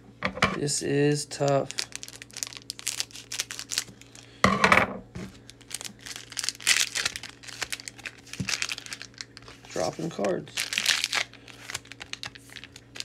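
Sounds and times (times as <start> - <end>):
foil wrapper crinkling: 1.3 - 4.3, 5.2 - 13.0.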